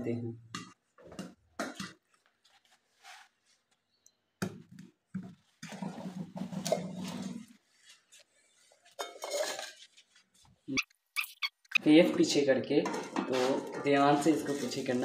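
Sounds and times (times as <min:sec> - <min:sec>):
pot clatter: 0:08.9 - 0:10.0.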